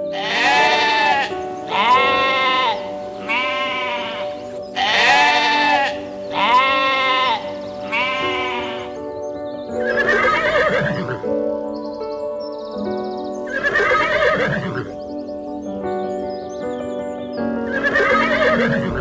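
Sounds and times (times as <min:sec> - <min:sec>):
sheep bleating: 0:00.0 - 0:09.0
background music: 0:00.0 - 0:19.0
horse whinnying: 0:00.2 - 0:09.0, 0:09.9 - 0:11.2, 0:13.5 - 0:14.9, 0:17.7 - 0:19.0.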